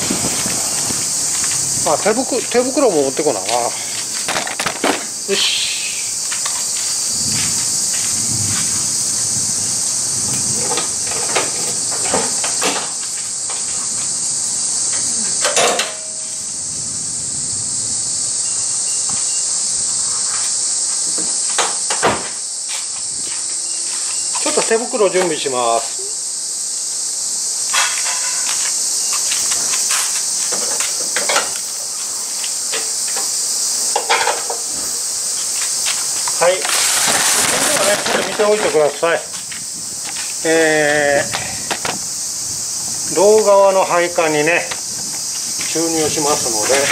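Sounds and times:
footsteps and handling shuffles: 0.0s - 4.3s, 6.2s - 8.9s, 22.6s - 26.0s, 27.9s - 33.2s, 35.3s - 40.4s, 44.6s - 46.9s
insects droning: 0.0s - 46.9s.

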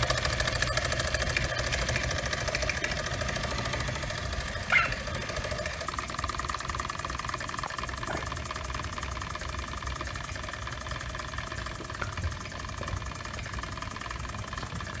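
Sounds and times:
steam engine exhaust chuffs: 0.0s - 15.0s.

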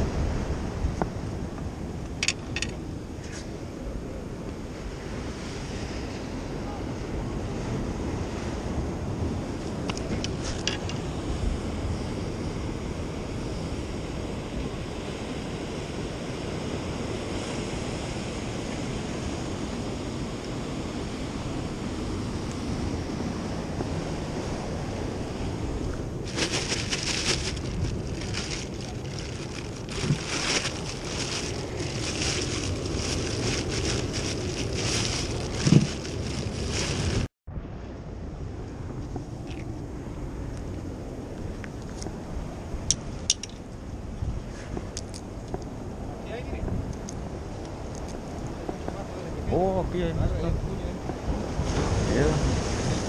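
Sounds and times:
wind buffeting microphone: 0.0s - 37.3s, 38.0s - 53.0s
plastic bag rustling: 26.2s - 37.3s.

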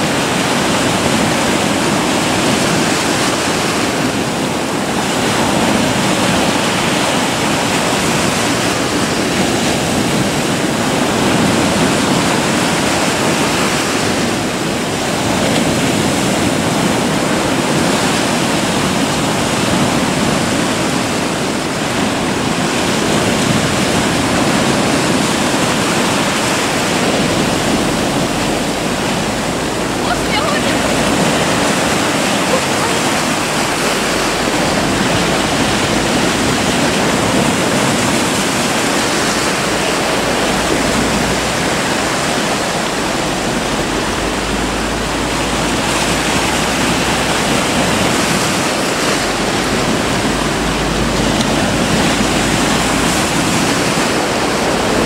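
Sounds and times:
surf breaking: 0.0s - 55.0s.

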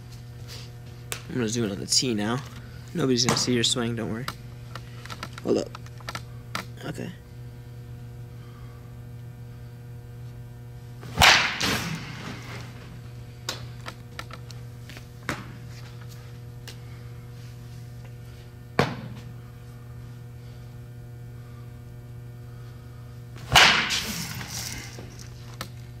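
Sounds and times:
electrical hum: 0.0s - 26.0s
bat cracking ball: 11.0s - 13.7s, 18.7s - 19.3s, 23.4s - 25.1s.

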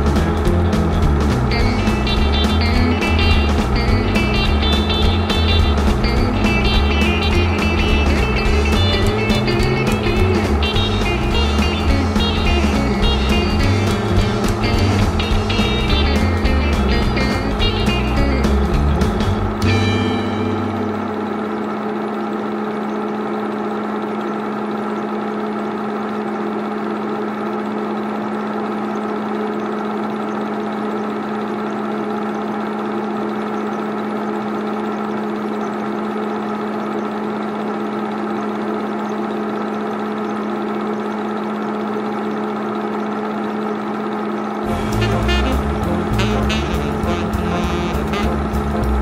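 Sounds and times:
film projector running: 0.0s - 49.0s.

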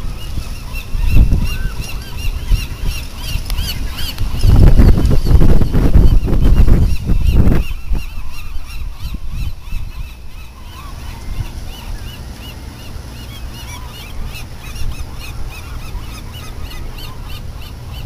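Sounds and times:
wind rumble on microphone: 0.0s - 12.2s.

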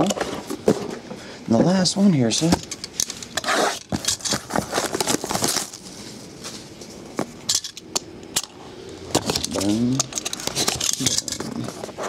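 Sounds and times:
wrapping crinkling and scraping: 2.4s - 7.8s.

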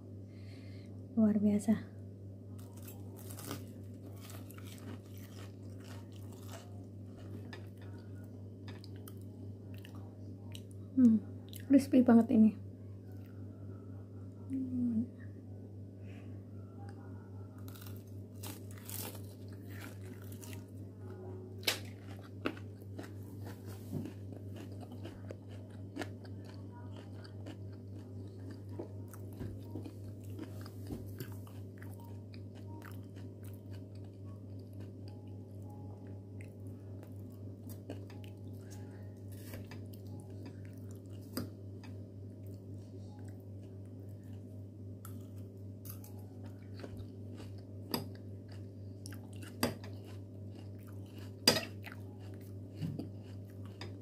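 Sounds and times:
steady low hum: 0.0s - 54.0s
chewing and crunching food: 2.5s - 11.7s, 16.9s - 54.0s.

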